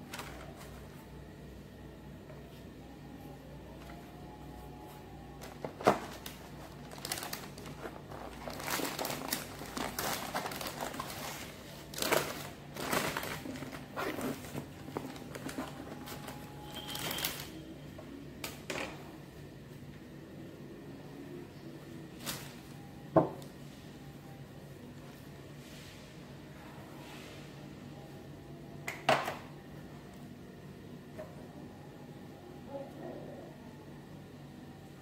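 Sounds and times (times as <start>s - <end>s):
baking paper rustling and crinkling: 5.4s - 17.6s.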